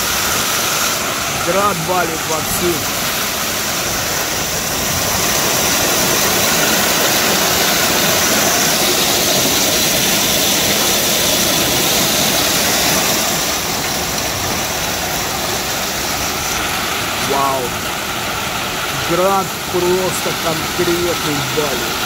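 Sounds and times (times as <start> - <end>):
heavy hail pouring down: 0.0 - 22.0.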